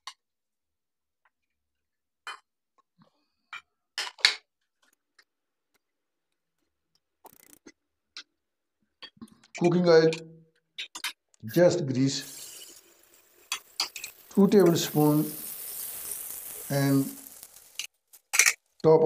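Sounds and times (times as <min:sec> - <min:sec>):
short crackle: 0:13.6 - 0:18.8.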